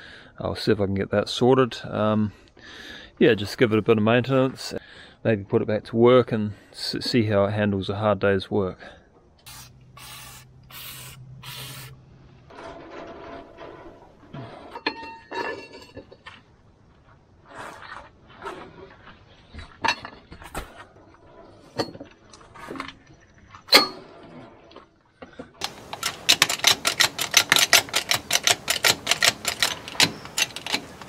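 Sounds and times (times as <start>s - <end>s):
metal clinks and knocks: 14.7s - 16.4s, 25.6s - 31.0s
socket wrench ratchet clicks: 25.6s - 31.0s.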